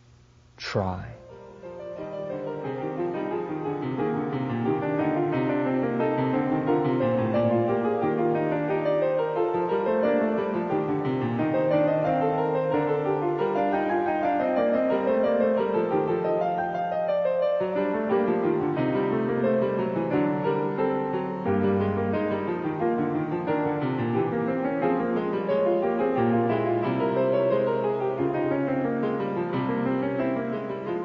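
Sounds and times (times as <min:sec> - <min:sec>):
slow piano music: 0:00.9 - 0:31.0.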